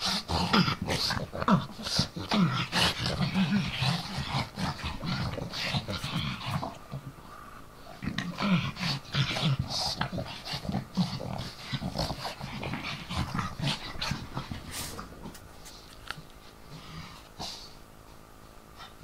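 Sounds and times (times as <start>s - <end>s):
dogs grunting while play-wrestling: 0.0s - 17.8s.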